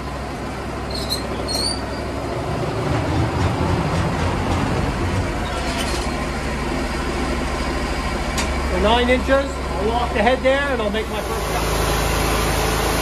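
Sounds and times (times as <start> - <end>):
bandsaw sawmill humming: 0.0 - 13.0
faint squeaks: 0.9 - 2.2.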